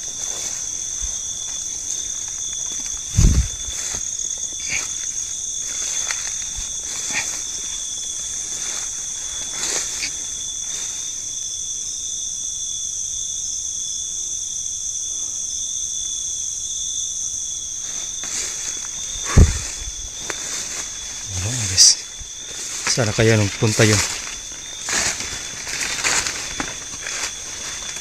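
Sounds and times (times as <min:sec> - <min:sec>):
footsteps through undergrowth: 0:00.0 - 0:11.3, 0:17.8 - 0:28.0
insect chorus droning: 0:00.0 - 0:28.0.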